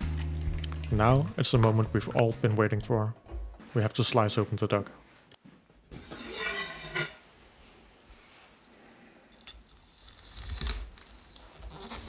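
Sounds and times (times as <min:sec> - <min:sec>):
knife scraping on cutting board: 0:06.0 - 0:07.2
knife crunching through crispy skin: 0:09.7 - 0:12.0.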